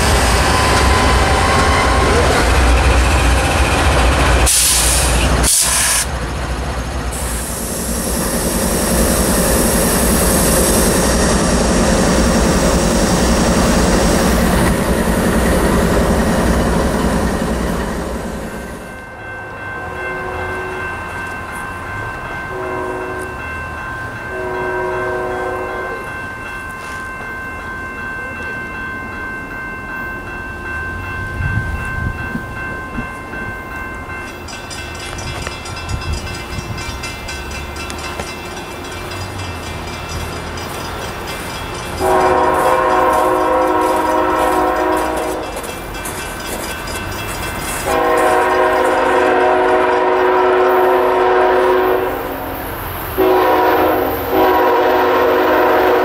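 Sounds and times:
locomotive air horn blasts: 24.3 - 26.0, 42.0 - 45.5, 47.9 - 52.5, 53.2 - 56.0.

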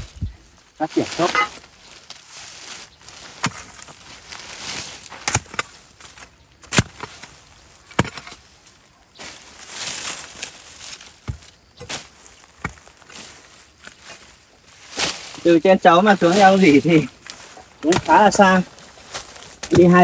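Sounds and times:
soil and dry leaves rustling: 0.0 - 20.0
hoe chopping into soil: 3.4 - 3.8, 5.2 - 5.8, 6.6 - 7.3, 7.9 - 8.4, 17.8 - 18.4.

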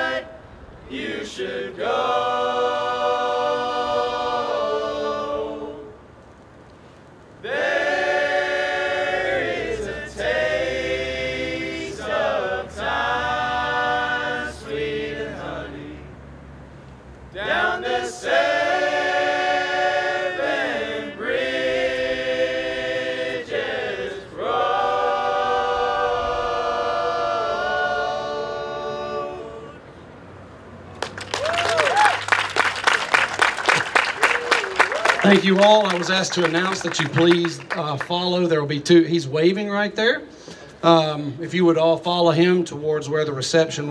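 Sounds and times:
male choir singing in harmony: 0.0 - 6.1, 7.4 - 16.3, 17.4 - 30.0.

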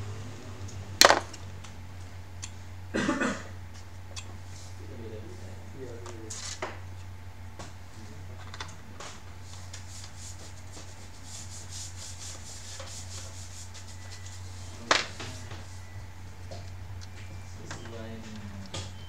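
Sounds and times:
steady low hum: 0.0 - 19.0
hands rubbing on plastic: 9.3 - 16.0.

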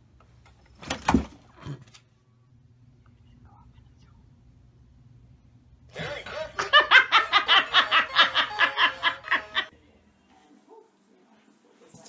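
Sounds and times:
person laughing hard: 5.9 - 9.7.

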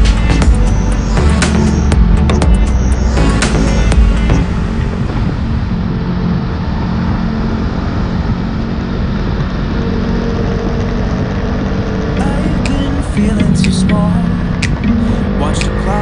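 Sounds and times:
motorcycle engine running: 0.0 - 16.0
wind and road noise: 0.0 - 16.0.

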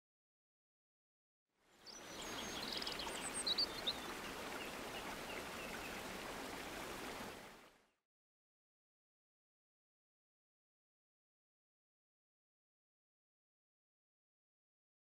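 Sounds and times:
stream trickling: 1.6 - 8.0
birds chirping: 1.8 - 6.2.

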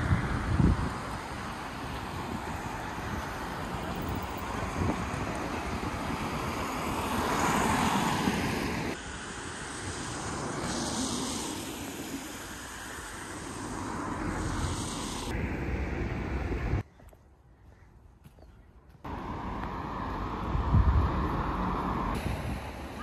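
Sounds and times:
wind on microphone: 0.0 - 9.0, 19.1 - 23.0
road traffic: 0.0 - 23.0.

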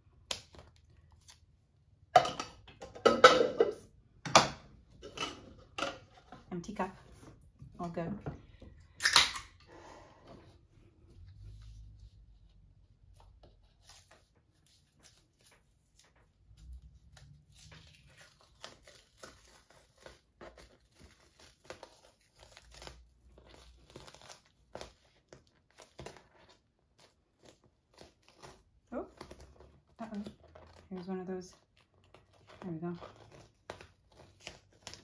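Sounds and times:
tape peeling with crackles: 13.1 - 35.0.

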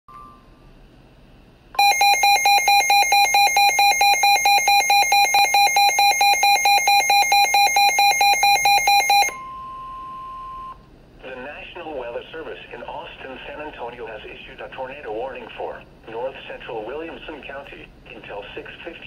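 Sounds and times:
rapid electronic alarm beeping: 1.8 - 9.4
steady single warning tone: 1.8 - 10.8.

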